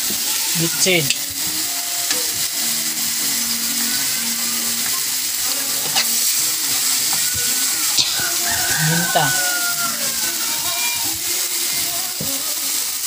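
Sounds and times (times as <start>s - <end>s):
vegetables sizzling in oil: 0.0s - 13.0s
metal spatula scraping a pan: 0.4s - 11.9s.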